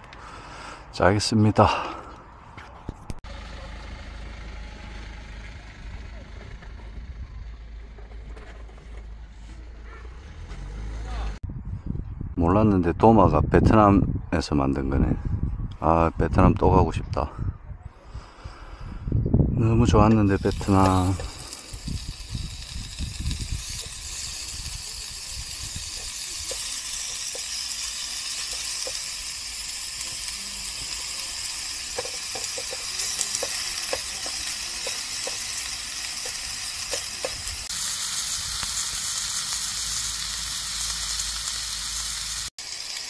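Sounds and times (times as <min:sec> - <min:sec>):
meat sizzling on a grill: 0:20.3 - 0:43.0.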